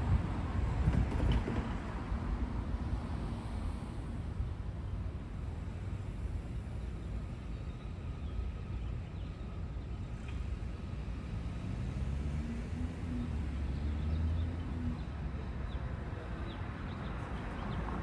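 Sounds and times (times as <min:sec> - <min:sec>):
passing traffic rumble: 0:00.0 - 0:18.0
vehicle engine passing: 0:10.8 - 0:15.4.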